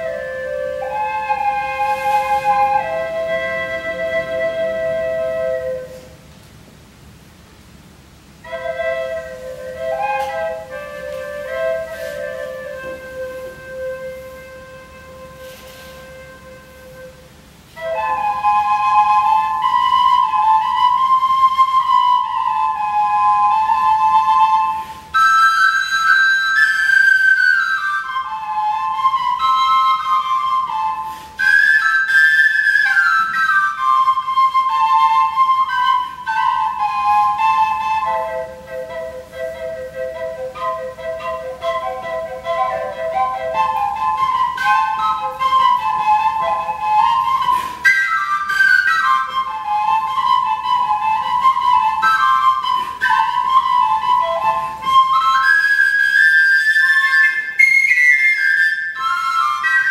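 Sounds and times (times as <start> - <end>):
low second flute tone: 0.0 - 6.3, 8.4 - 59.9
wooden flute melody: 0.0 - 7.2, 8.1 - 59.9.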